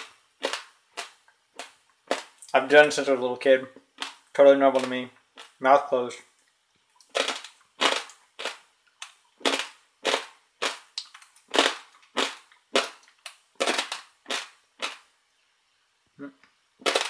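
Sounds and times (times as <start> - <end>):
dry pasta crunching while chewed: 0.0 - 2.5, 7.0 - 15.0.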